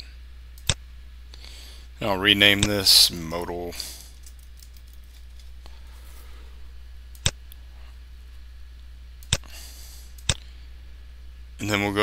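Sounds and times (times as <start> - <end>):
low steady hum: 0.0 - 12.0
computer mouse clicks: 0.6 - 0.8, 7.1 - 7.6, 9.2 - 10.5.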